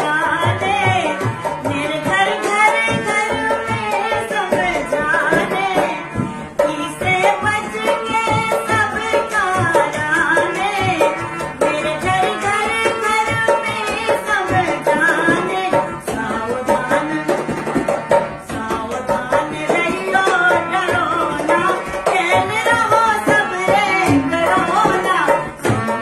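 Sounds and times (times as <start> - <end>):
person singing: 0.0 - 17.6
hand drum beating: 0.0 - 26.0
harmonium: 0.0 - 26.0.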